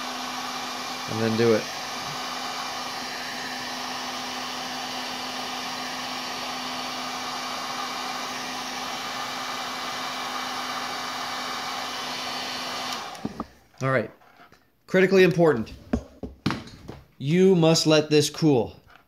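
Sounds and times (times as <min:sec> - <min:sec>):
heat gun blowing air: 0:00.0 - 0:13.6.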